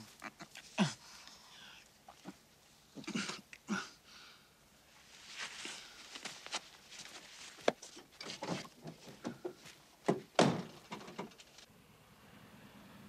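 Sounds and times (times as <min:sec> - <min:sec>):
man gasping and groaning: 0:00.6 - 0:01.8, 0:03.0 - 0:04.4.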